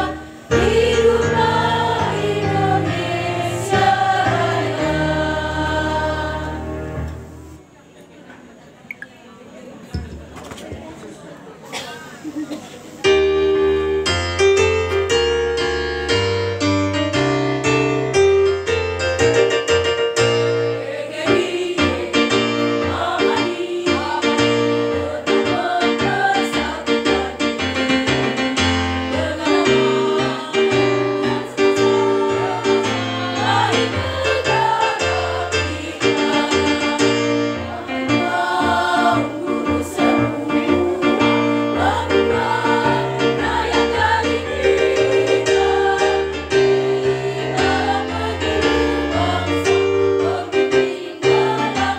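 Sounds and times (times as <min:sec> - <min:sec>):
women's choir singing: 0:00.0 - 0:07.6, 0:20.6 - 0:51.9
electric keyboard chords and bass: 0:13.1 - 0:20.8.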